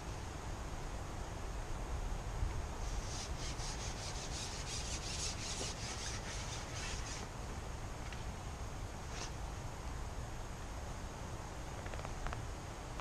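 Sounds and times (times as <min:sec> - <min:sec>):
rhythmic rasping rubs: 0:03.0 - 0:07.2.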